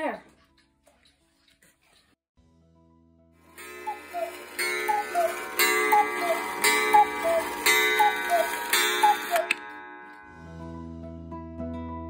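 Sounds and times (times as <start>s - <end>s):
clock ringing strike: 3.5s - 10.5s
two-note cuckoo calls: 3.6s - 9.7s.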